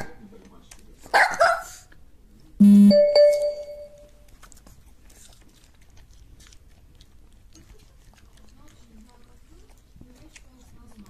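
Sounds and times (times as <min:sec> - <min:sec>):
short buzzing tone: 0:02.6 - 0:03.8
ringing chime: 0:02.6 - 0:04.1.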